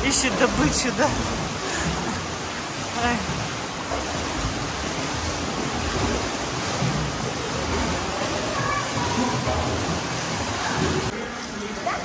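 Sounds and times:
water rushing at a swimming pool: 0.0 - 12.0.

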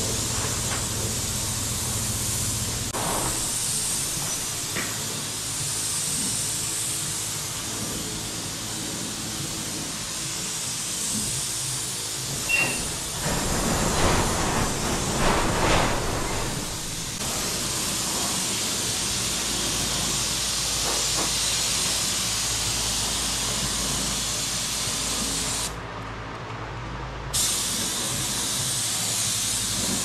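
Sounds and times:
paint spray gun hissing: 0.0 - 13.3, 16.6 - 25.7, 27.4 - 30.0.

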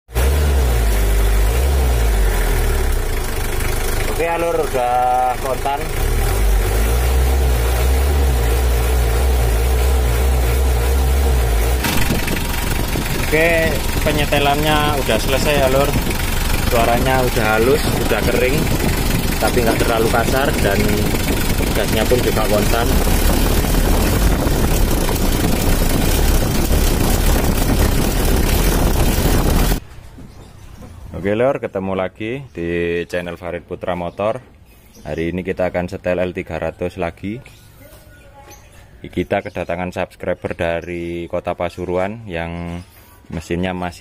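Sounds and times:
diesel engine idling: 0.2 - 29.9.

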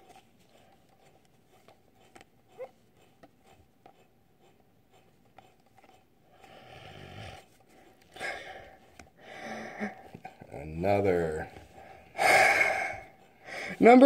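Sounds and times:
person breathing out: 8.2 - 10.0, 12.2 - 13.8.

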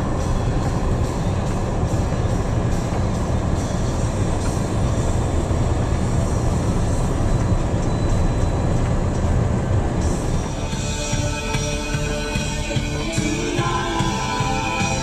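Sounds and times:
diesel engine rumble: 0.0 - 15.0.

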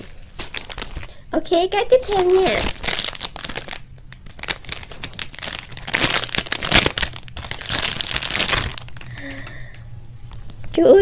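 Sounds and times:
plastic bag crinkling: 0.0 - 1.2, 1.8 - 9.8.

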